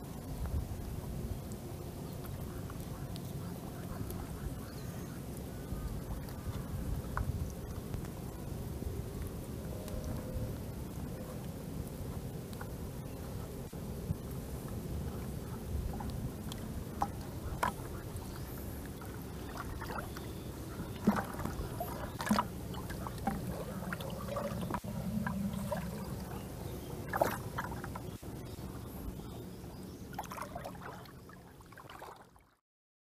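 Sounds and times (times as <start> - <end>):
water sloshing around a bucket: 14.7 - 32.6
small splashes and knocks: 15.9 - 26.3, 27.0 - 28.2, 30.1 - 32.6.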